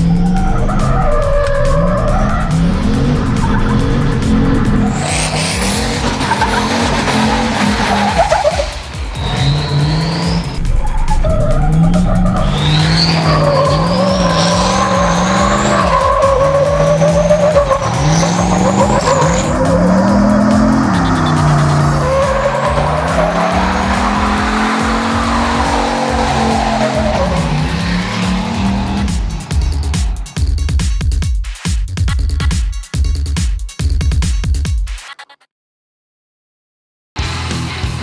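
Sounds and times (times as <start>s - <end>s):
truck engine revving hard: 0.0s - 31.1s
tyre squeal: 4.8s - 30.0s
high whistling tones: 6.2s - 30.7s.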